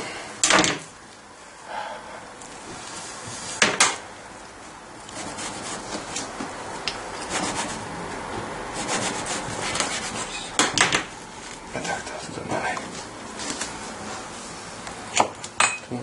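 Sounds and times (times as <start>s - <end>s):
knife sawing through bread: 5.1s - 6.1s, 7.2s - 7.9s, 8.7s - 10.5s.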